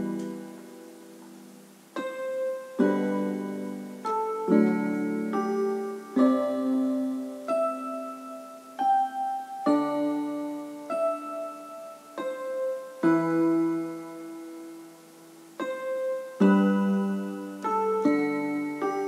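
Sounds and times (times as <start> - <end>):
piano chords: 0.0 - 19.0.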